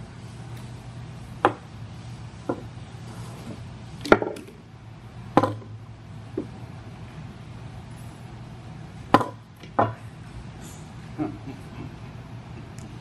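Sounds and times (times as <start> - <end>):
steady low hum: 0.0 - 13.0
sharp wooden knocks: 5.4 - 5.7, 9.1 - 10.0.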